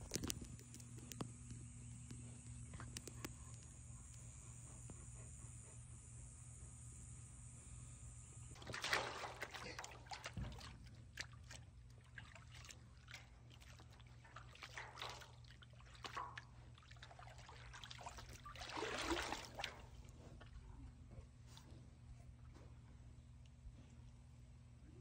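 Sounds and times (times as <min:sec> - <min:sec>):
water splashing in metal tank: 0:08.6 - 0:20.0.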